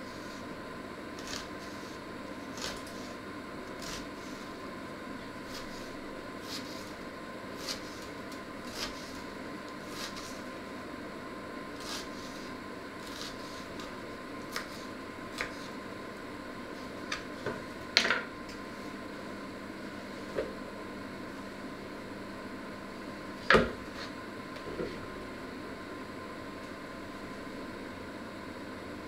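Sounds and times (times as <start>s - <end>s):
steady background hum: 0.0s - 29.0s
knife chopping on wooden board: 8.7s - 9.2s, 14.5s - 15.6s.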